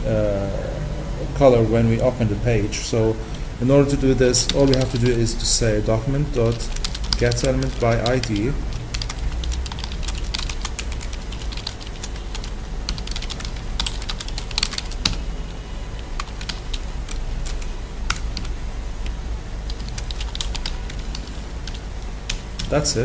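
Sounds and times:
low steady hum: 0.0s - 23.0s
keyboard typing: 4.5s - 5.2s, 6.4s - 15.2s, 16.2s - 22.8s.

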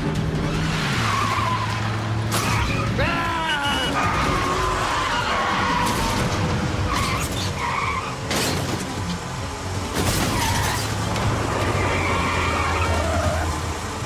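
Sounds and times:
car engines running hard: 0.0s - 14.0s
tire squeals: 0.4s - 8.8s, 10.0s - 14.0s.

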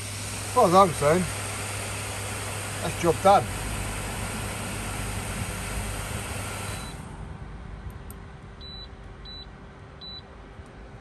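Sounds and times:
cooker hiss: 0.0s - 7.0s.

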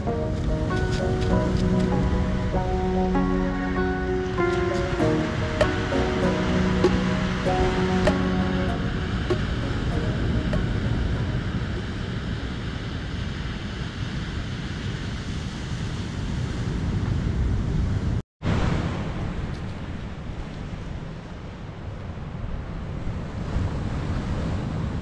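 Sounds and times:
ocean surf washing onto beach: 0.0s - 17.5s.

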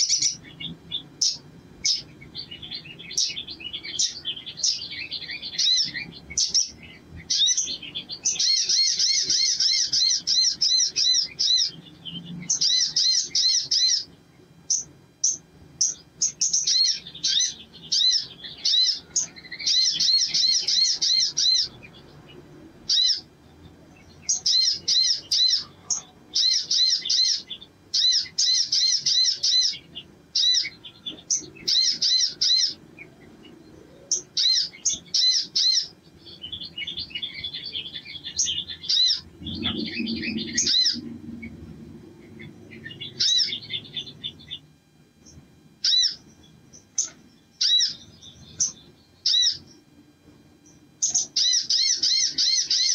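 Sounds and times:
sunbird chattering trills: 0.0s - 49.8s, 50.7s - 52.9s.

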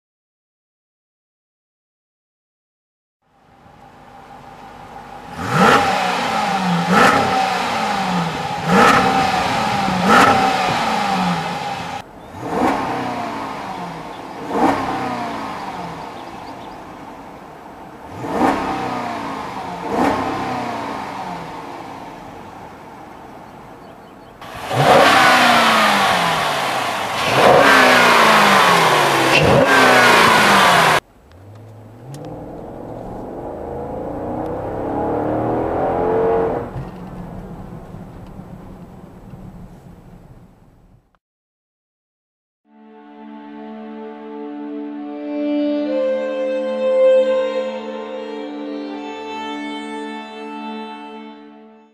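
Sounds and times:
car engine revving: 3.3s - 41.1s.

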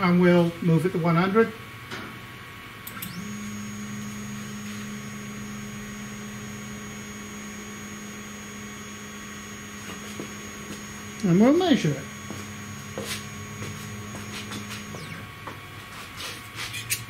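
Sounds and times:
clicks: 2.8s - 5.3s, 6.2s - 11.3s
stepper motor whine: 2.8s - 15.8s.

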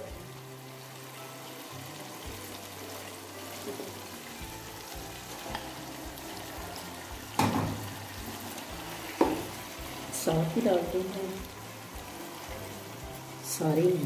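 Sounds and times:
masala sizzling in oil: 0.0s - 14.0s.

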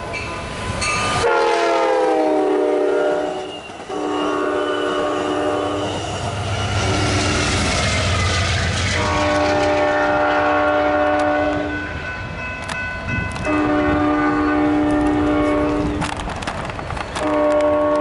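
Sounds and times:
train rumble: 0.0s - 18.0s
locomotive air horn: 1.2s - 7.6s, 8.9s - 11.8s, 13.4s - 16.0s, 17.2s - 18.0s.

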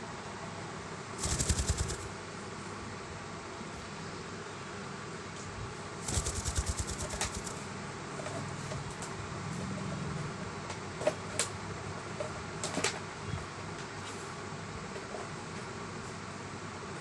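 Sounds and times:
parrot wings flapping: 1.2s - 2.2s, 6.0s - 7.6s.

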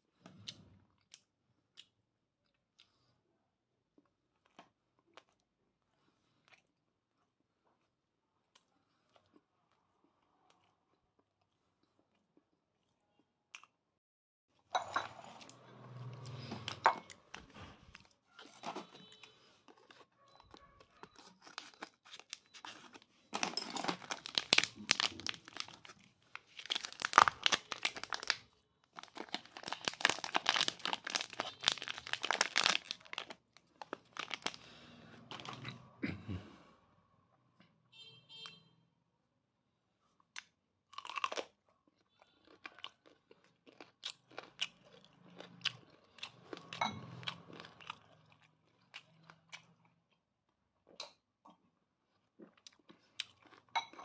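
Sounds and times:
foil pouch crinkling: 21.2s - 34.6s.

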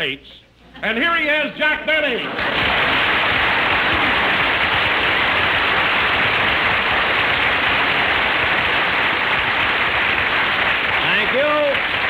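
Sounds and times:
audience applauding: 2.2s - 12.0s.

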